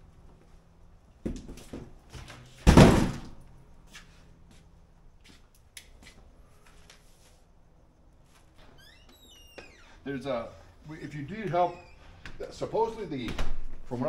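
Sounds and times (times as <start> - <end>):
loud thump: 2.6 - 3.4.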